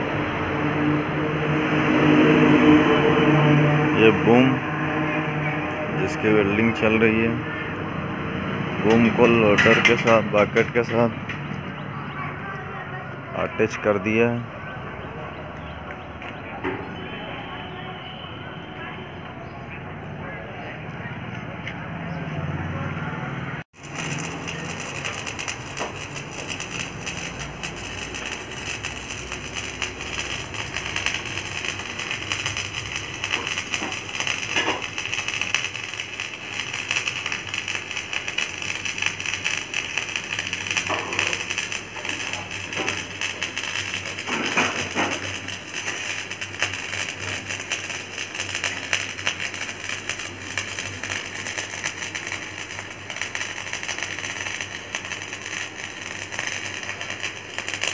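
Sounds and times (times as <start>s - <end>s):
welding arc crackling: 23.7s - 57.9s.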